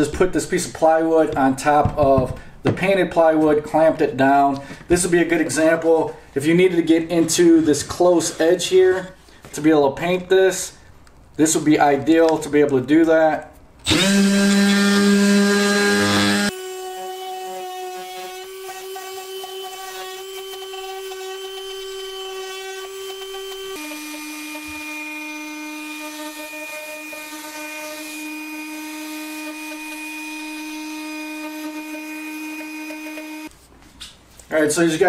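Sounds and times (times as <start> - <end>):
orbital sander whining: 13.9 - 33.5.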